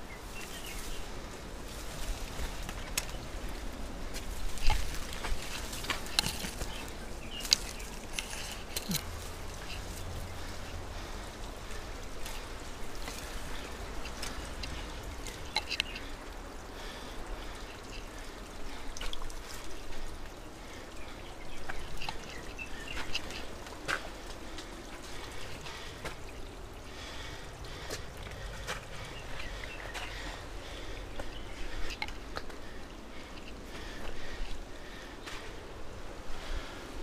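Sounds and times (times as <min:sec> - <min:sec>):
dry plants rustling: 0:00.0 - 0:37.0
footsteps scrambling on gravel: 0:00.5 - 0:10.2.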